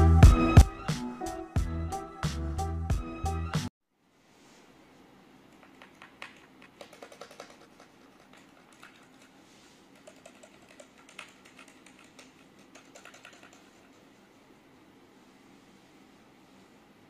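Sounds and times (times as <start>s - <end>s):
mechanical keyboard key clacks: 5.6s - 9.3s, 10.0s - 14.0s.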